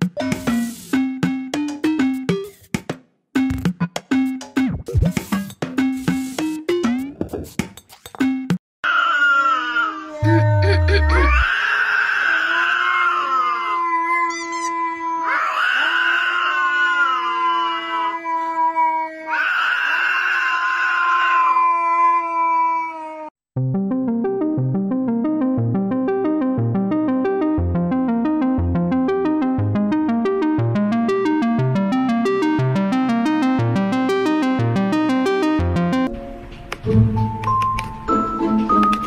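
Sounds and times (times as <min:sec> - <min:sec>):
synth keyboard music with beat: 0:00.0 - 0:02.8, 0:03.4 - 0:08.5, 0:23.6 - 0:39.0
animal howling: 0:08.8 - 0:23.3.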